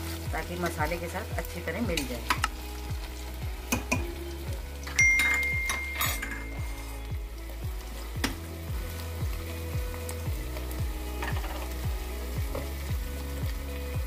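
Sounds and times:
onions and spices sizzling: 0.0 - 14.0
short bright ding: 5.0 - 6.6.

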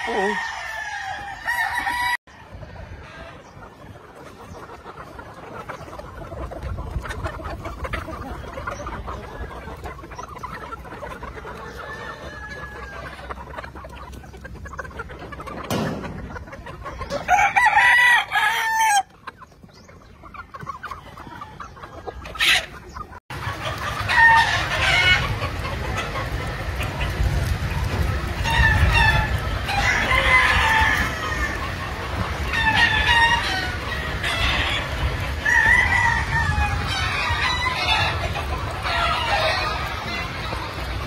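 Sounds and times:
rooster crowing loudly: 0.0 - 2.2, 17.3 - 19.1, 29.7 - 31.5, 35.4 - 38.0
roosters clucking: 0.0 - 41.0.

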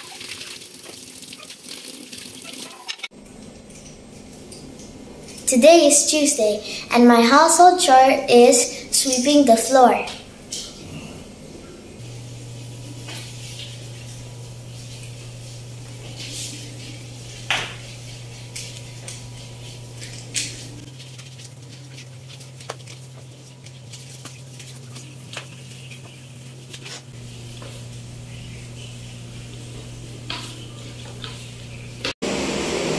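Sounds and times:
steady low hum: 3.1 - 32.2
broom swishing on tiled floor: 12.2 - 31.6.

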